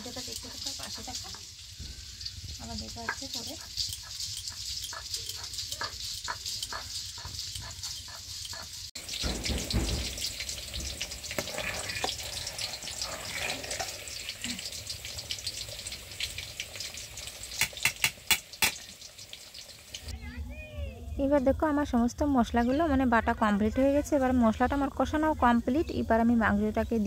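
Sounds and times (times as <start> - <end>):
rice boiling in pot: 0.0 - 20.2
metal ladle stirring: 3.1 - 14.4
sharp metal knocks: 8.5 - 11.0
grinding stone strokes: 11.3 - 14.6.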